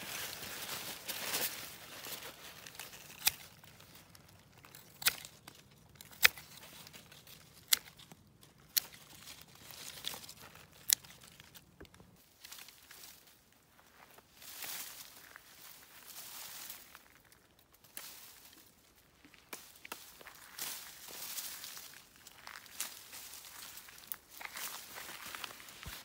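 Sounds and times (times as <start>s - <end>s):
cloth and twigs rustling: 0.0s - 26.0s
pruning shears snipping: 2.6s - 4.0s, 4.6s - 11.6s.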